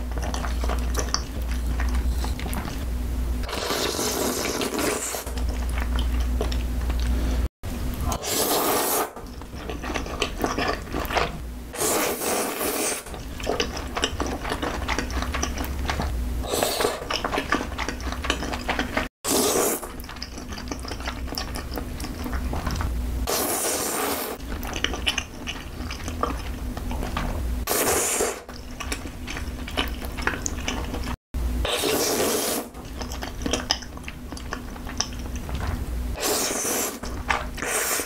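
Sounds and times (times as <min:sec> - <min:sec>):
chewing: 0:00.0 - 0:02.8, 0:03.5 - 0:07.2, 0:09.2 - 0:11.4, 0:13.1 - 0:19.1, 0:19.8 - 0:22.9, 0:24.4 - 0:27.4, 0:28.4 - 0:31.2, 0:32.8 - 0:35.8
person slurping noodles: 0:03.4 - 0:05.3, 0:08.1 - 0:09.1, 0:11.8 - 0:13.1, 0:16.4 - 0:17.1, 0:19.3 - 0:19.9, 0:23.3 - 0:24.4, 0:27.7 - 0:28.5, 0:31.7 - 0:32.7, 0:36.2 - 0:38.0.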